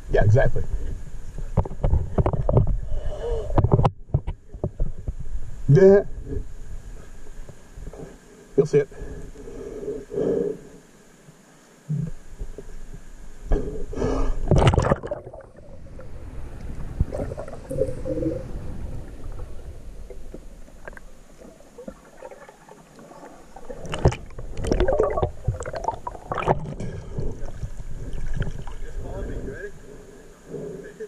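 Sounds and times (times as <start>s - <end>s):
muffled underwater water movement: 0.0s - 31.0s
water splashing: 14.5s - 29.6s.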